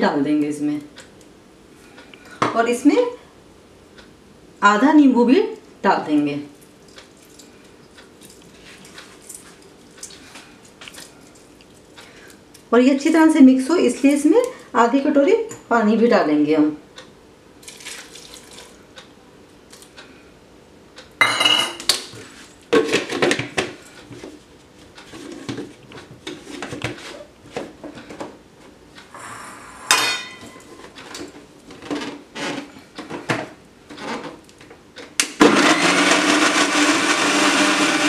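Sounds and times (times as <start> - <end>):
mixer grinder motor running: 35.4 - 38.0.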